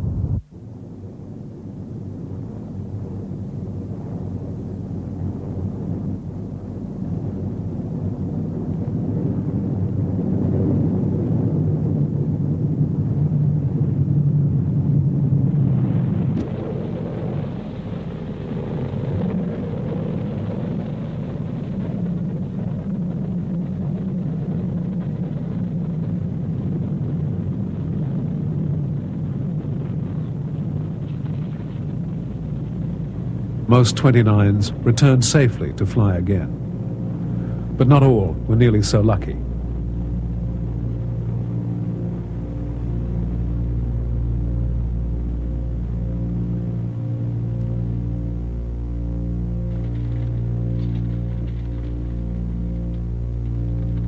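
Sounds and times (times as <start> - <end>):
piston engines droning: 30.2 - 54.0.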